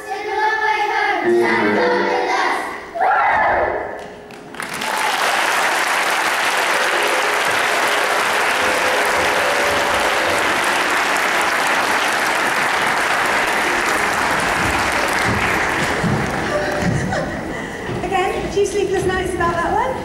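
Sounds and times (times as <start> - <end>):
audience applause: 4.3 - 17.3.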